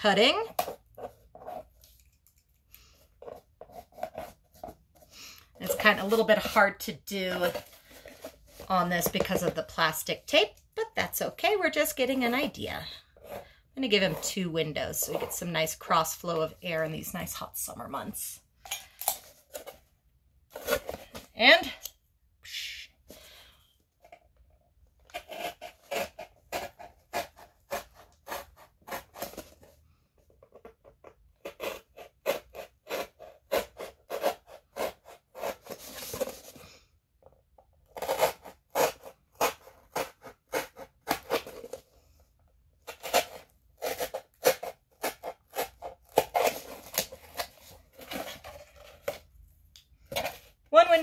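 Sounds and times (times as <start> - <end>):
knife sawing through cardboard: 0.3 - 1.9, 3.2 - 10.2, 25.0 - 29.8, 31.4 - 36.6, 37.9 - 42.0, 42.8 - 49.2.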